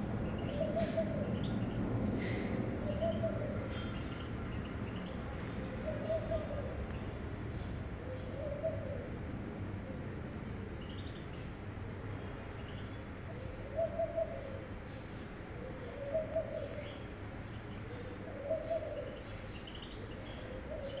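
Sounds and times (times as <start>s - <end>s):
dove cooing: 0.4s - 1.6s, 2.2s - 4.0s, 5.6s - 6.9s, 8.0s - 9.2s, 13.3s - 14.8s, 15.6s - 17.0s, 17.8s - 19.5s, 20.3s - 21.0s.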